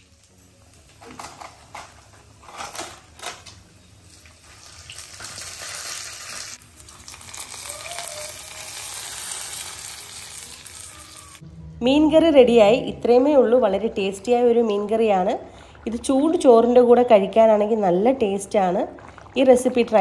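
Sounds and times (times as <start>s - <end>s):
spices sizzling in hot oil: 3.7s - 11.4s.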